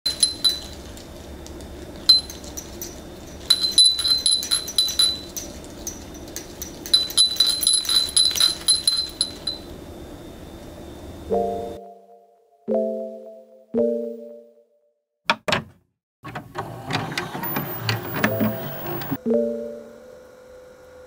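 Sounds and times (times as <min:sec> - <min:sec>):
ceramic wind bell clinking: 0:00.1 - 0:01.1, 0:02.0 - 0:09.8.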